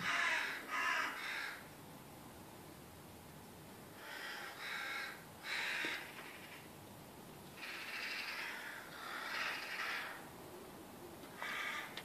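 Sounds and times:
crows cawing harshly: 0:00.0 - 0:01.7, 0:04.0 - 0:06.7, 0:07.6 - 0:10.3, 0:11.3 - 0:12.0.

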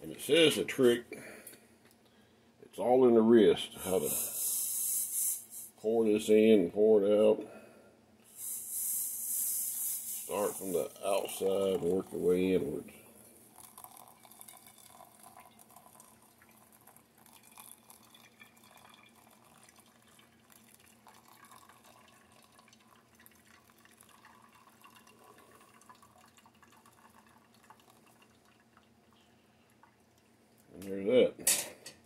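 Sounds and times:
water trickling onto coffee grounds: 0:08.4 - 0:30.7.

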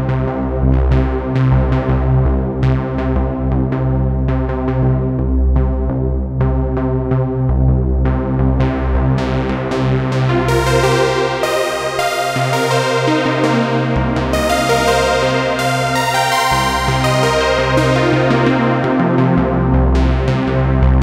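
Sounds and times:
steady low synth bass: 0:00.0 - 0:21.0
synthesizer plucked notes: 0:10.0 - 0:21.0.

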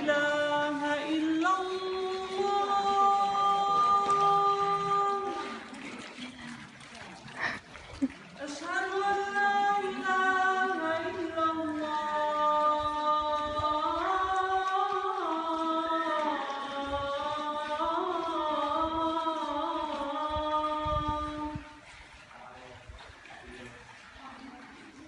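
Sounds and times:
man singing call to prayer: 0:00.0 - 0:05.7, 0:08.4 - 0:21.8.

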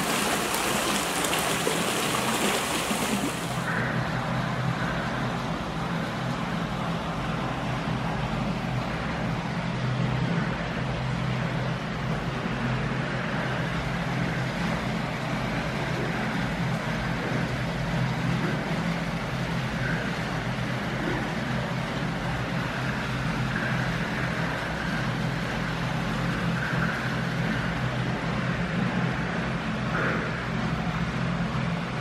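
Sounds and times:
water splashing and churning: 0:00.0 - 0:03.9.

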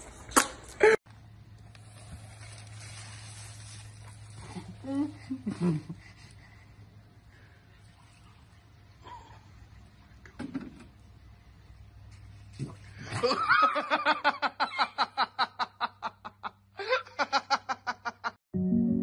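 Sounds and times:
woman laughing hard: 0:04.8 - 0:06.0, 0:13.1 - 0:18.4.

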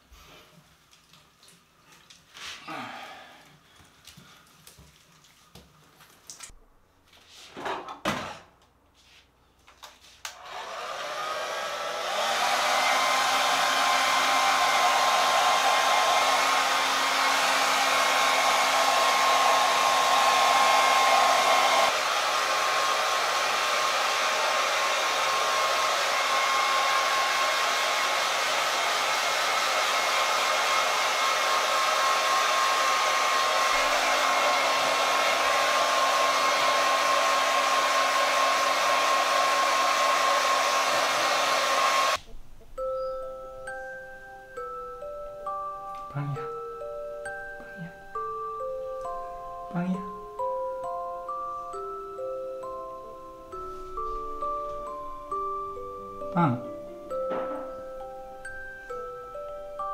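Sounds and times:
hair dryer blowing: 0:10.3 - 0:42.2, 0:45.6 - 0:59.9.

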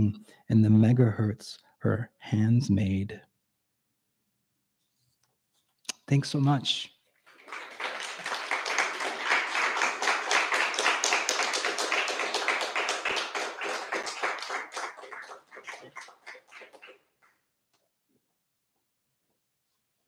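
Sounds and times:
audience applauding: 0:07.2 - 0:17.4.

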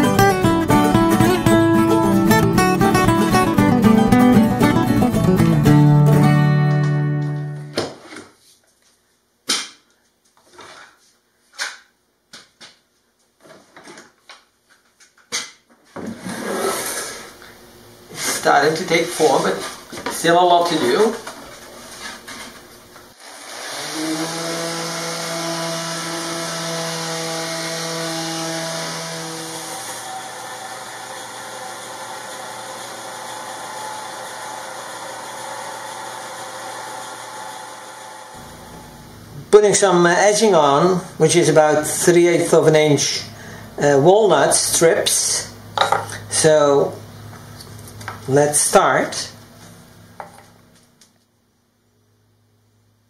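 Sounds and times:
machine motor humming: 0:30.6 - 0:39.5.

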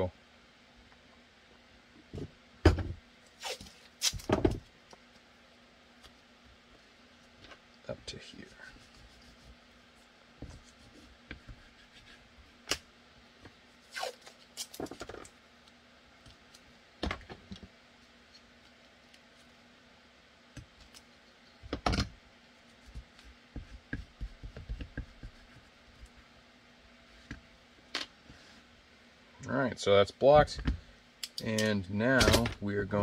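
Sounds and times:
tape tearing: 0:03.4 - 0:04.3, 0:13.8 - 0:15.1.

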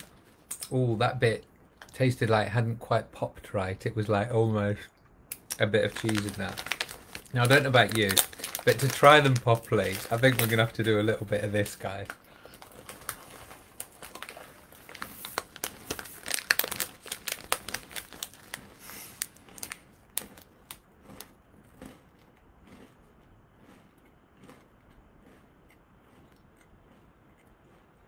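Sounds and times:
snack packet crinkling: 0:05.4 - 0:23.0.

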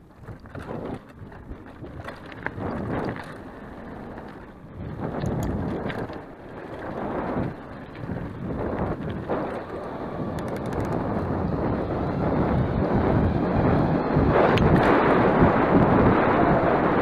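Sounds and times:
bike parts rattling: 0:00.0 - 0:11.2
bike tyres rumbling: 0:00.0 - 0:17.0
wind buffeting microphone: 0:00.0 - 0:17.0.

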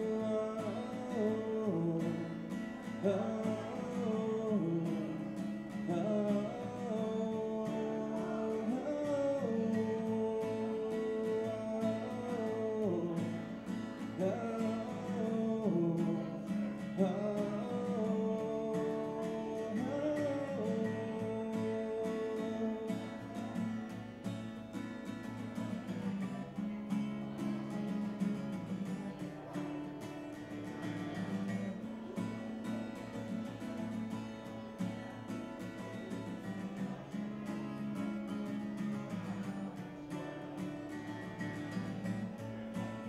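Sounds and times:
man singing wordless notes: 0:00.0 - 0:24.1
acoustic guitar strumming: 0:00.0 - 0:43.0.

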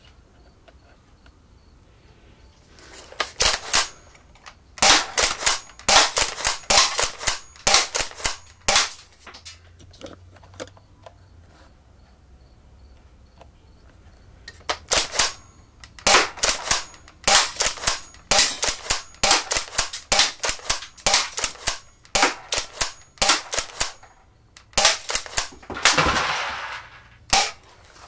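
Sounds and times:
plastic clacks of pump shotgun: 0:14.5 - 0:26.6
pellets striking metal cans: 0:14.8 - 0:28.0
rattling clatter: 0:25.2 - 0:27.2.

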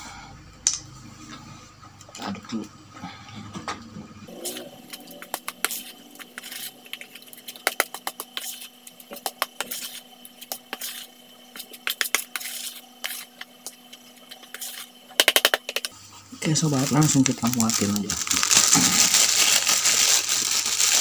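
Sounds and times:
spoon squelching through dough: 0:04.3 - 0:15.0.

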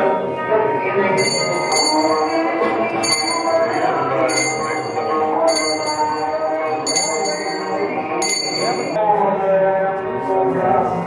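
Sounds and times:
hand bell ringing: 0:01.2 - 0:09.0.

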